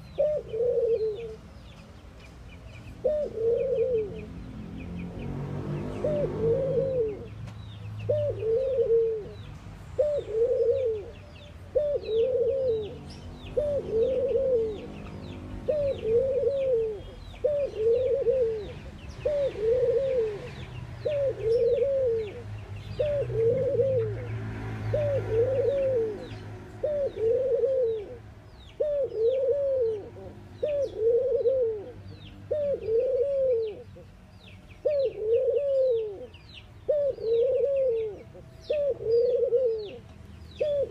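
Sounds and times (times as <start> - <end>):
dove cooing: 0.0 - 1.5, 2.9 - 4.4, 5.8 - 7.4, 8.1 - 34.0, 34.8 - 40.9.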